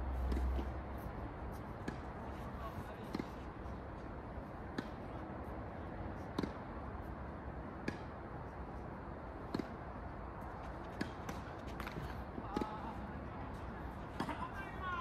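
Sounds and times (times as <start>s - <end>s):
steady background noise: 0.0s - 15.0s
tennis ball hit by rackets: 1.8s - 2.2s, 4.7s - 5.0s, 6.3s - 6.7s, 7.8s - 8.2s, 9.4s - 9.8s, 10.7s - 13.0s, 14.1s - 14.4s.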